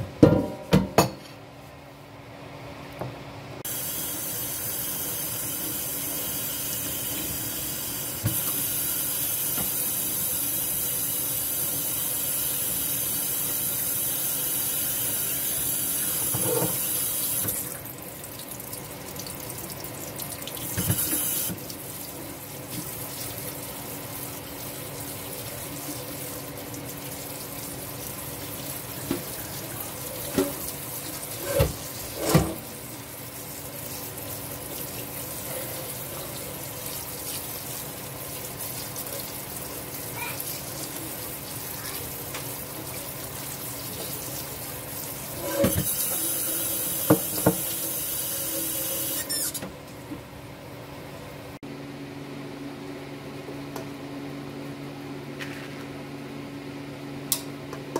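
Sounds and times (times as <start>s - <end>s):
colander knocking: 0.2s - 1.2s
tap water splashing in sink: 9.5s - 9.8s, 20.2s - 21.8s, 30.3s - 30.8s, 46.9s - 47.8s.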